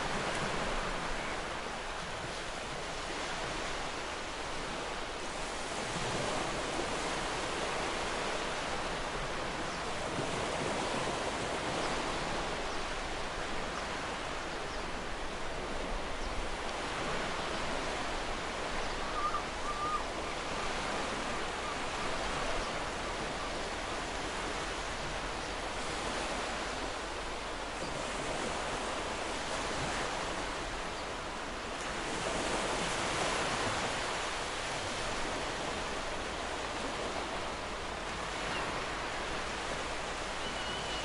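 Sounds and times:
ocean waves washing ashore: 0:00.0 - 0:41.0
faint bird chirp: 0:18.8 - 0:20.4, 0:40.3 - 0:41.0.

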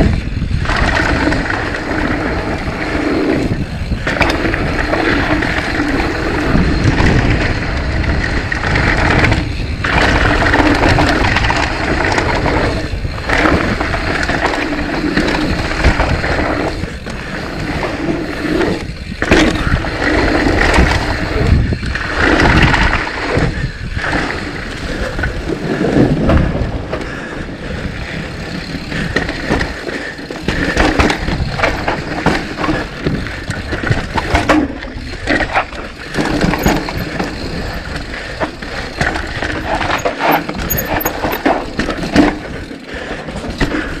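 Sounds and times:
bike tyres rumbling over dirt: 0:00.0 - 0:44.0
wind noise: 0:00.0 - 0:44.0.

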